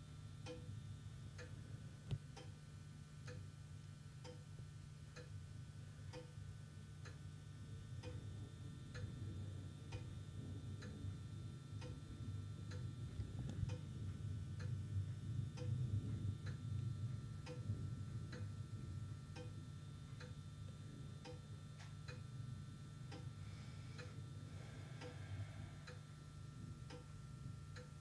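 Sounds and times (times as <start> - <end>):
steady low hum: 0.0 - 28.0
regular ticking: 0.4 - 0.7, 1.4 - 2.6, 3.2 - 3.5, 4.2 - 4.5, 8.0 - 8.2, 11.7 - 14.0, 14.6 - 15.8, 16.4 - 22.3, 23.0 - 23.4, 24.0 - 26.1, 26.7 - 28.0.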